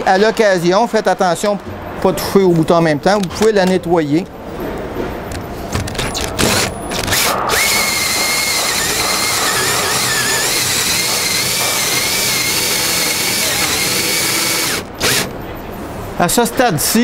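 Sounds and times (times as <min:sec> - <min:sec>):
cordless drill boring wood: 0:06.4 - 0:15.3.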